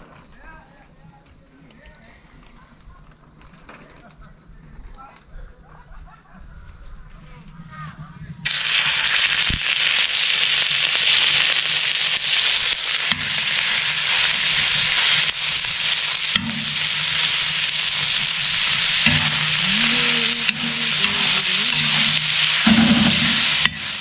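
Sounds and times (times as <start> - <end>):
meat sizzling on a griddle: 8.4 - 24.0
metal skimmer scraping griddle: 13.1 - 24.0.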